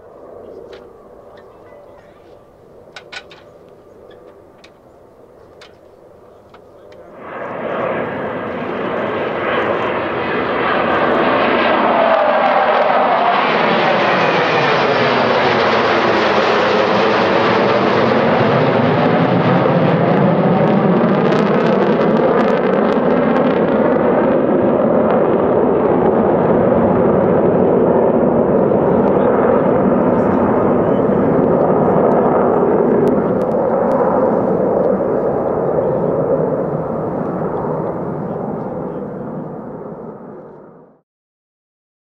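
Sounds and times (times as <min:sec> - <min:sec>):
jet engines flying past: 0:00.0 - 0:41.0.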